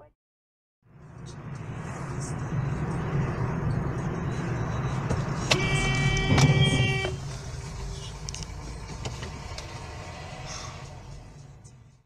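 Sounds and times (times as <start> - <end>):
car driving road noise: 0.8 - 12.0
car horn: 5.5 - 7.2.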